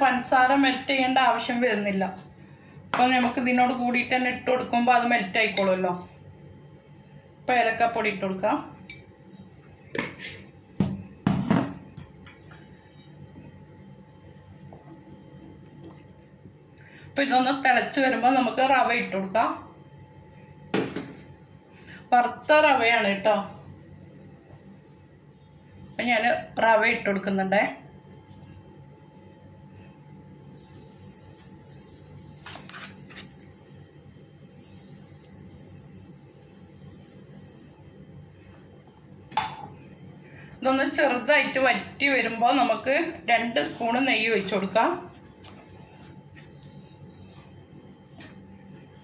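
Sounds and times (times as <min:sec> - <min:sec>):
juice simmering while stirred: 0:12.0 - 0:16.8.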